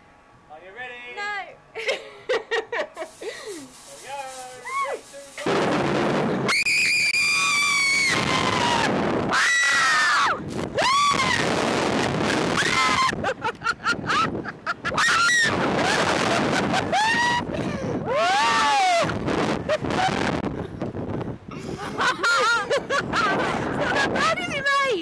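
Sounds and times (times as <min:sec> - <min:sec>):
shrieks and whoops: 0:04.6 - 0:05.0, 0:06.5 - 0:11.5, 0:12.3 - 0:13.3, 0:14.1 - 0:19.2
women screaming: 0:04.6 - 0:05.1, 0:06.5 - 0:11.5, 0:12.5 - 0:13.3, 0:14.9 - 0:19.2
wind rushing across microphone: 0:05.4 - 0:25.0.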